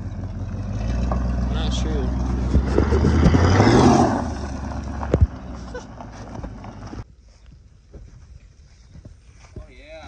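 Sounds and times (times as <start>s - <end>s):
pickup truck engine revving: 0.0s - 7.0s.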